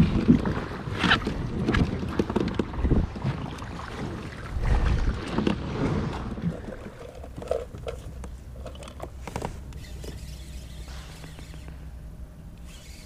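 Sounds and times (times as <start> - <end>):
wind noise: 0.0 - 3.5
water noise: 0.0 - 13.0.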